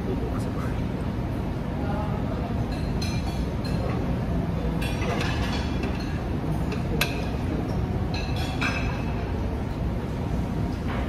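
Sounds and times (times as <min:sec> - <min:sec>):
cutlery clinking on plate: 0:04.8 - 0:07.4, 0:08.1 - 0:09.2.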